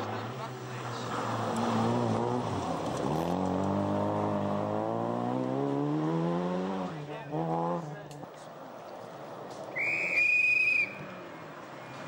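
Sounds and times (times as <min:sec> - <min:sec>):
rally car engine at full throttle: 0:00.0 - 0:08.4.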